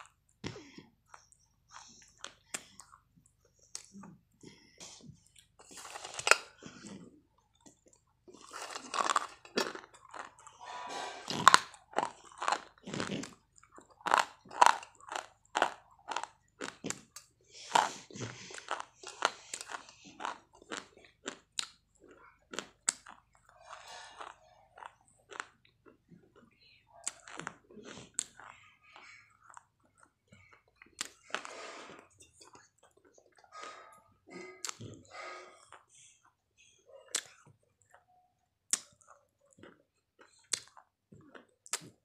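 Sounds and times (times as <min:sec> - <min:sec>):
person crunching chalky sticks: 0:07.8 - 0:25.6.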